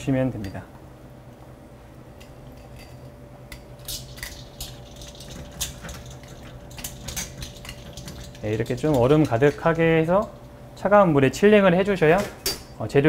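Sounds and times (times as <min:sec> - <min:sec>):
kitchen hum: 0:00.0 - 0:13.0
metal tongs clinking on bowl: 0:02.2 - 0:10.5.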